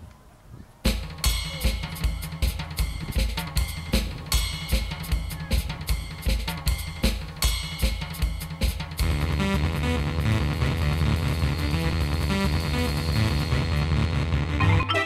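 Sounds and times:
fast drum-kit beat: 0.9s - 14.1s
low bass line: 9.0s - 15.0s.

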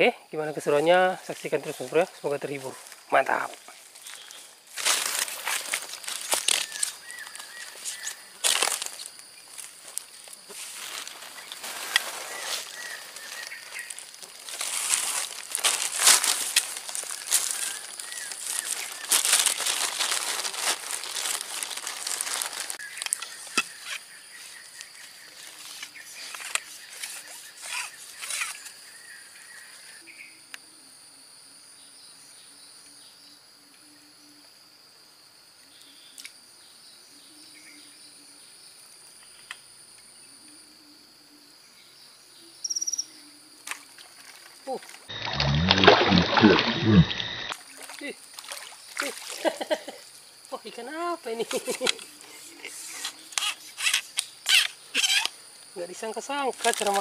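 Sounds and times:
insects droning: 0.0s - 57.0s
plastic bag crinkling: 10.8s - 22.8s.

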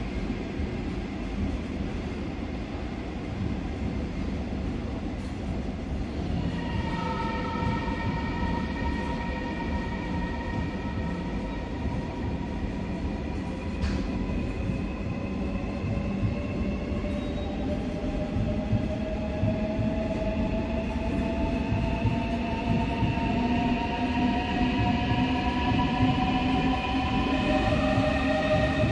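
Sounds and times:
train wheel rumble: 0.0s - 28.9s.

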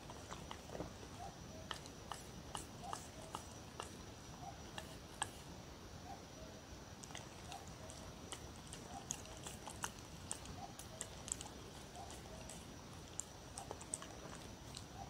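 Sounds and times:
dog crunching cucumber: 0.0s - 5.5s, 7.0s - 15.0s
wet mouth clicks: 1.6s - 4.0s, 4.7s - 5.4s, 7.0s - 15.0s.

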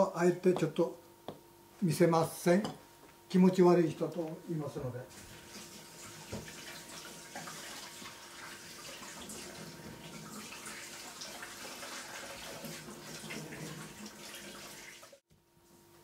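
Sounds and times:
tap water running into sink: 5.1s - 15.2s.

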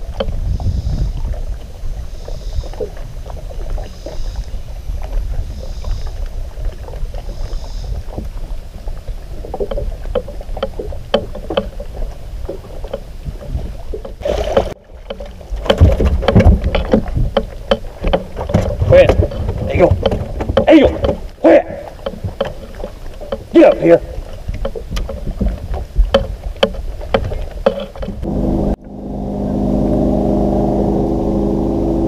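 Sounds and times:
wind and water rumble: 0.0s - 32.0s
clicks and knocks of fishing gear: 9.5s - 21.4s, 22.0s - 28.3s.

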